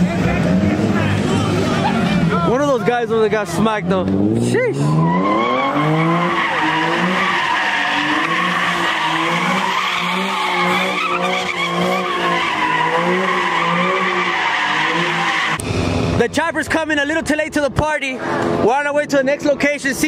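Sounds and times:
car engine revving: 0:00.0 - 0:17.3
tyres squealing: 0:04.7 - 0:15.6.

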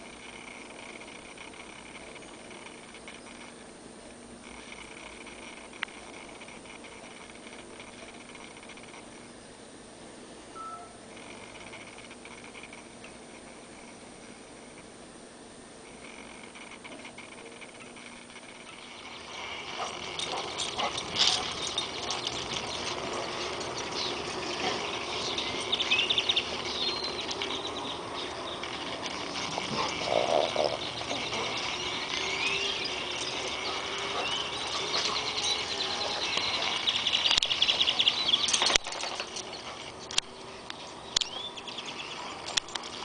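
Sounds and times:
animals chirping and trilling: 0:15.9 - 0:43.0.

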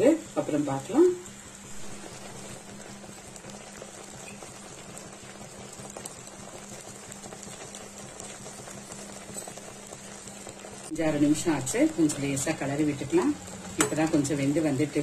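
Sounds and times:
water simmering with small pops: 0:00.8 - 0:15.0
low steady hum: 0:09.6 - 0:15.0.

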